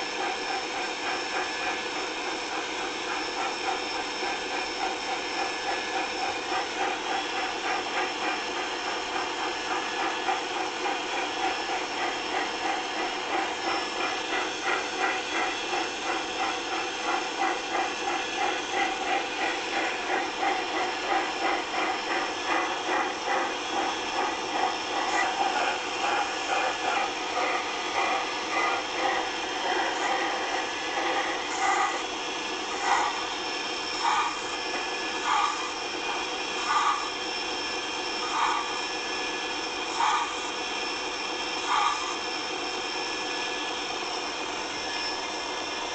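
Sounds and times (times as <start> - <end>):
locomotive pulsing hum: 0.0 - 45.9.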